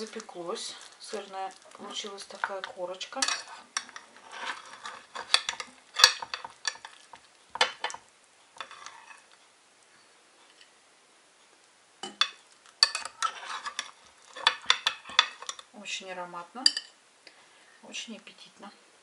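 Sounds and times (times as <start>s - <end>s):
metal scraping on glass dish: 1.9s - 8.0s, 8.6s - 9.4s, 12.0s - 15.7s.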